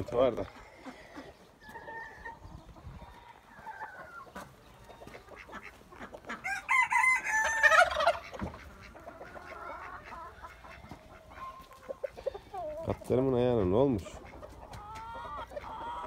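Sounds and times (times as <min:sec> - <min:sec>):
chickens clucking: 0:00.0 - 0:16.0
rooster crowing: 0:06.4 - 0:08.1.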